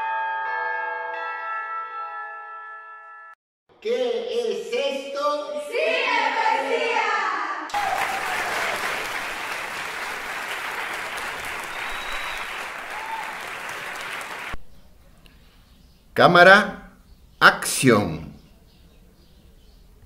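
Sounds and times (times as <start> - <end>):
group calling out: 5.7 - 8.8
crowd clapping and applauding: 7.7 - 14.6.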